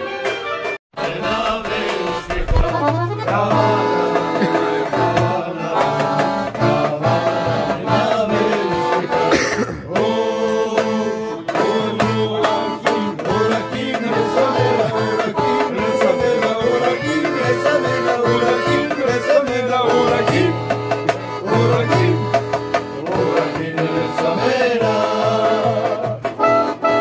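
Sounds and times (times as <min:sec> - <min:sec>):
accordions playing: 0:00.0 - 0:27.0
steady beat: 0:01.0 - 0:27.0
clarinet playing: 0:26.4 - 0:27.0.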